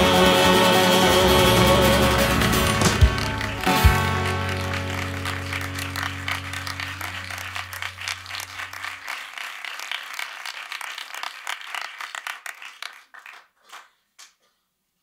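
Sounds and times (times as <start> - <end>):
band holding final chord: 0.0 - 7.5
audience applause: 0.0 - 14.0.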